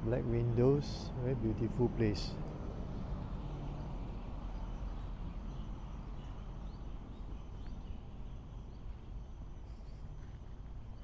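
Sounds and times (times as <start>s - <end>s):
low outdoor rumble: 0.0s - 11.0s
faint bird chirps: 3.4s - 11.0s.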